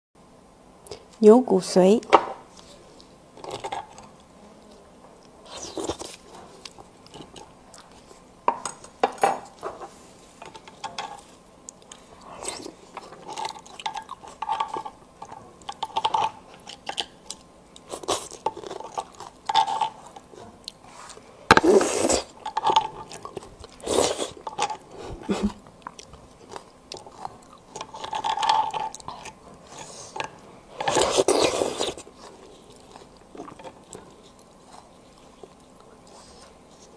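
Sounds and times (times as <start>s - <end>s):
chewing: 2.5s - 8.8s, 10.4s - 36.9s
metal spoon scraping bones: 27.2s - 32.0s.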